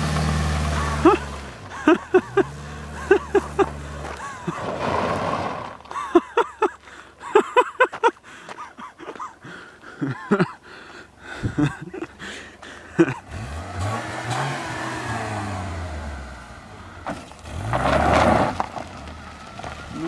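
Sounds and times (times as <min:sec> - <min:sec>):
car engine revving: 0:00.0 - 0:05.9, 0:12.1 - 0:20.0
tyres spinning on gravel: 0:00.0 - 0:09.4, 0:11.6 - 0:20.0
spraying gravel: 0:02.2 - 0:05.9.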